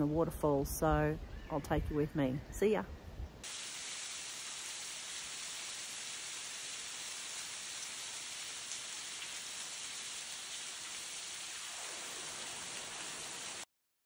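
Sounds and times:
waterfall splashing: 3.4s - 13.7s.

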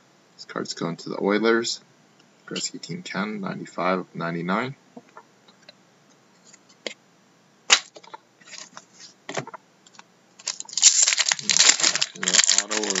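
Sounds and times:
card rustling: 10.4s - 13.0s.

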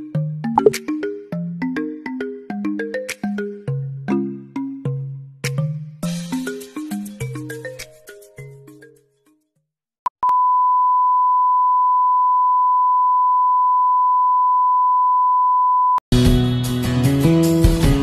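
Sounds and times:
steady pure beep: 10.2s - 16.0s.

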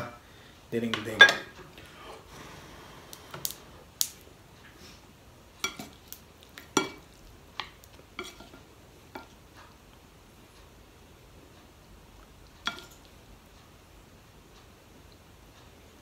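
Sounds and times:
spoon clinking against bowl: 5.6s - 6.0s, 12.7s - 13.1s.

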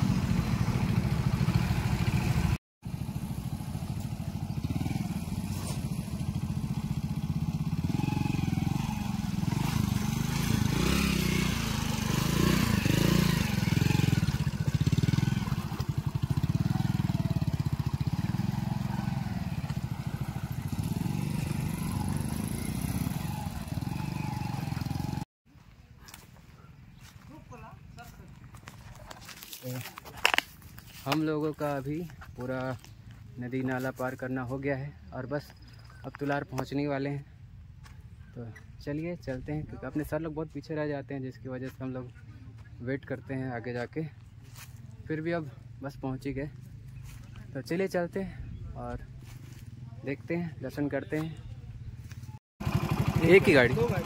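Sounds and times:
motorcycle engine at low revs: 0.0s - 25.3s, 44.2s - 54.0s.

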